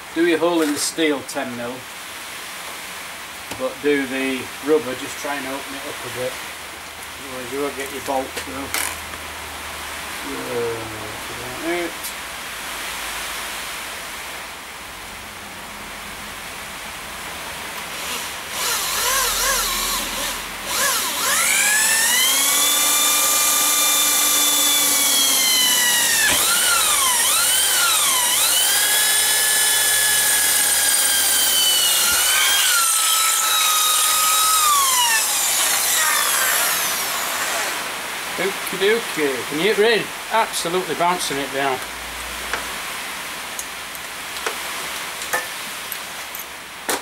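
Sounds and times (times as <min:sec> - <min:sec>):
electric drill whining: 0:18.0 - 0:37.9.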